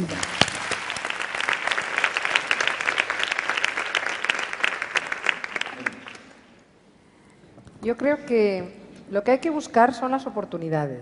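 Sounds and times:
large audience applauding: 0.0 - 6.5.

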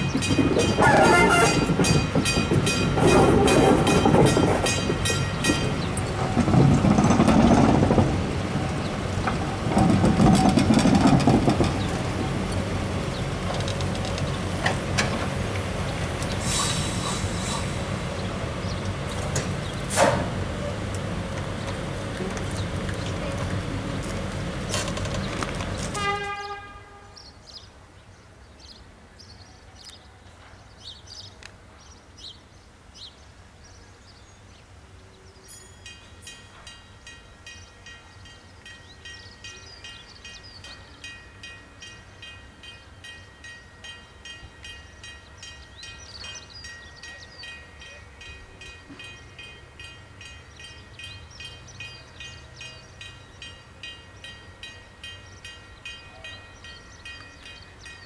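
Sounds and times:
level crossing warning bell: 35.5 - 58.0.

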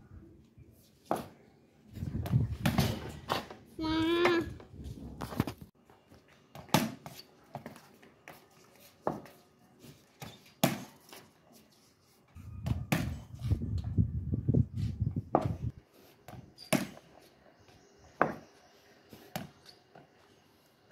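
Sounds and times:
ball hitting floor and cage: 1.0 - 1.4, 2.0 - 4.6, 6.5 - 8.4, 9.0 - 11.3, 12.6 - 13.4, 15.3 - 17.3, 18.2 - 20.1.

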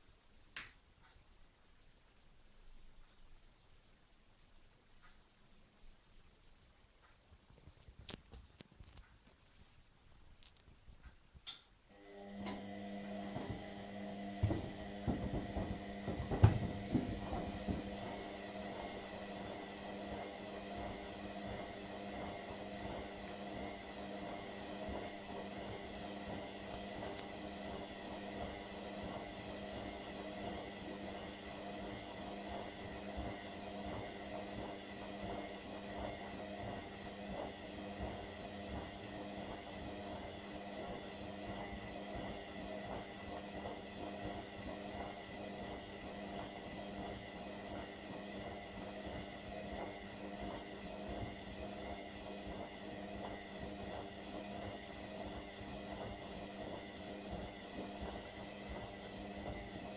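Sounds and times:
washing machine drum whirring: 11.9 - 59.9
drum knocks: 14.4 - 18.0.

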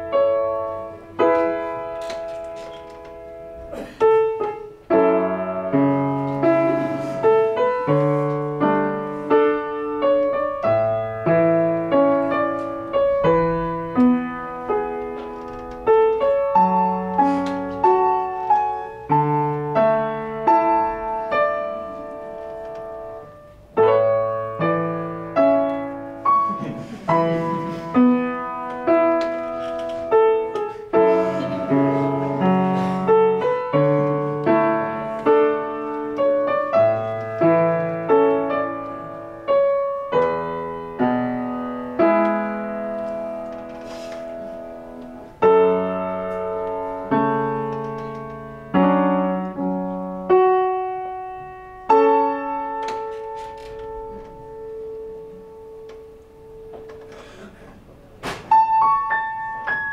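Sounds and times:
solo piano melody: 0.0 - 59.9.

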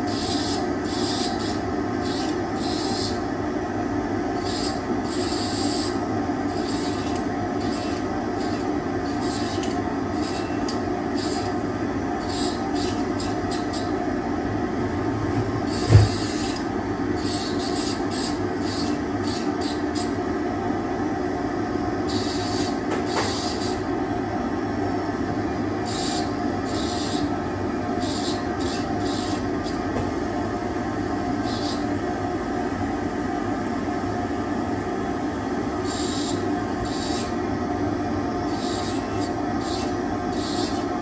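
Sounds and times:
dental handpiece motor whine: 0.0 - 3.3, 4.3 - 14.0, 15.6 - 20.3, 22.1 - 23.9, 25.8 - 29.9, 31.4 - 32.0, 35.8 - 37.5, 38.3 - 41.0.

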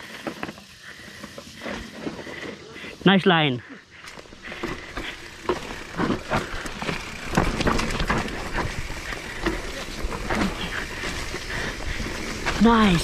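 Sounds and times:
bike tyres on dirt: 0.0 - 13.0
bike rattling and knocking: 4.0 - 13.0.

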